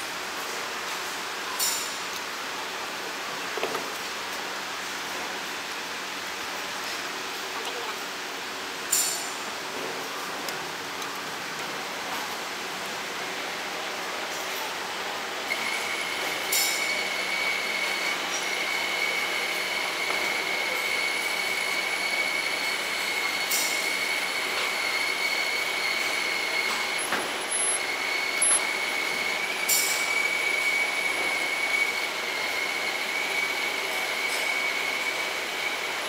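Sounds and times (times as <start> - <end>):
high steady whine: 9.1 - 32.2
metal lathe whirring: 12.4 - 36.0.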